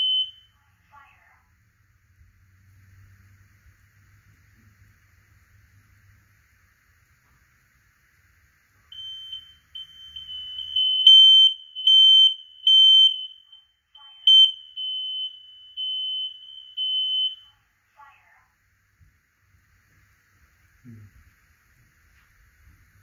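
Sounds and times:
smoke alarm beeping: 0.0s - 0.6s, 8.9s - 17.7s.

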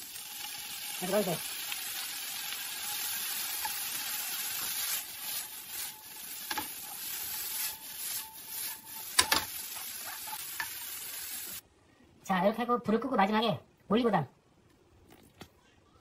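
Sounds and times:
sauce sizzling in a wok: 0.0s - 11.6s
wooden spatula scraping a pan: 2.9s - 11.6s
wok knocking: 5.9s - 11.0s.

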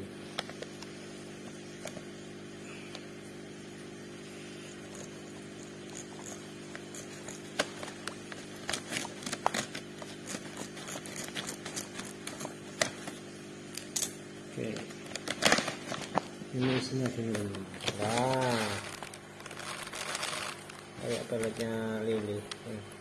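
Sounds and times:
plastic bag crinkling: 14.6s - 22.7s.

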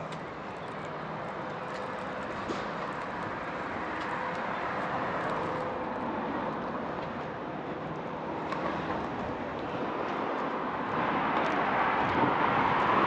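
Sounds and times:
street traffic hum: 0.0s - 13.0s.

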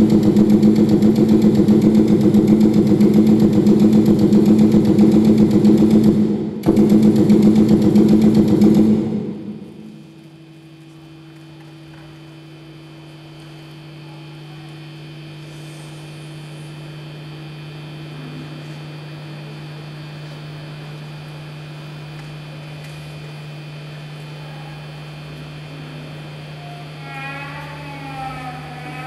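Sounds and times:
loud rumbling: 0.0s - 10.1s
low electronic hum: 0.0s - 29.0s
faint high tones: 26.5s - 28.7s.

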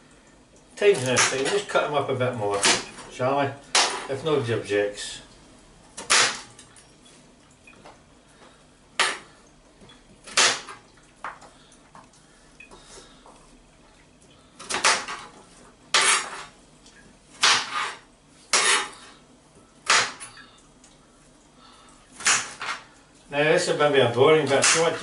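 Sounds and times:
knife chopping on a board: 17.4s - 18.9s, 19.9s - 20.2s.

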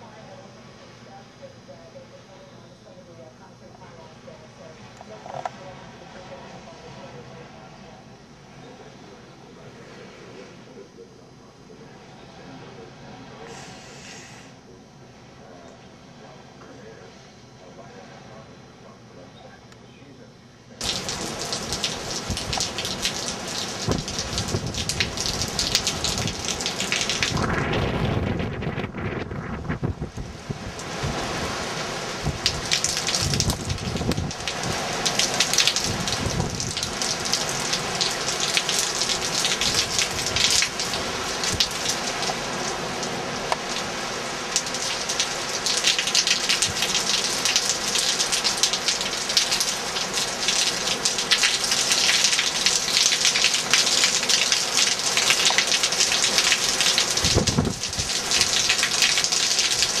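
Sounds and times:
heavy rain splashing: 20.8s - 60.0s
strong wind: 20.9s - 35.1s, 35.7s - 38.0s, 57.1s - 58.7s.

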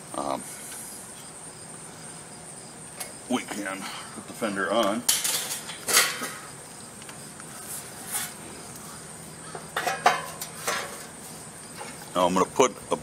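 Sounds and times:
metal fender scraping: 7.6s - 8.4s, 9.8s - 11.2s.

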